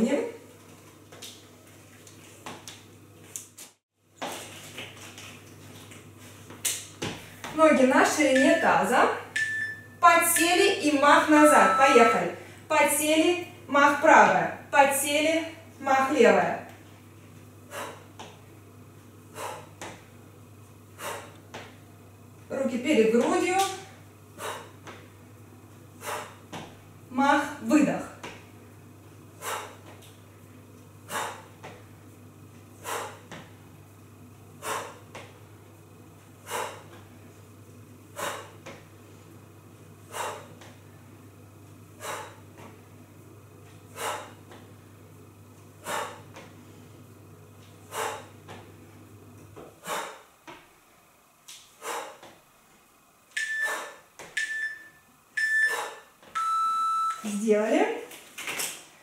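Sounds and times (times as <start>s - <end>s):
low steady hum: 4.0s - 58.3s
timer beeps: 8.3s - 10.6s, 11.4s - 12.3s, 53.4s - 57.3s.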